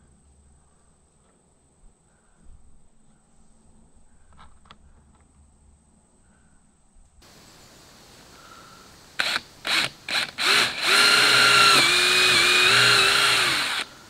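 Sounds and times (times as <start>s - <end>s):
cordless drill whirring: 9.2s - 14.0s.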